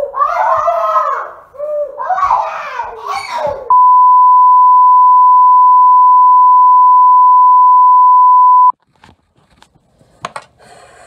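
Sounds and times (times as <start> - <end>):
loud electronic beep tone: 3.7 - 8.7.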